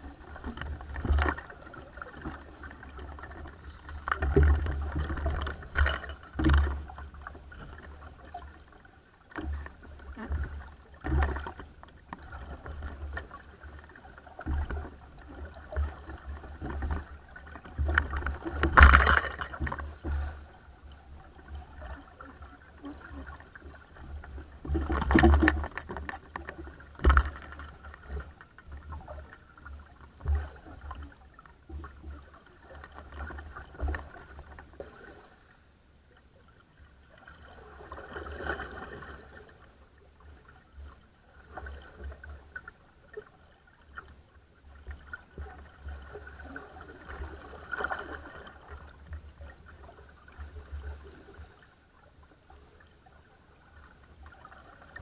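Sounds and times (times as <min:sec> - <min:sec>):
water splashing against hull: 0:00.0 - 0:55.0.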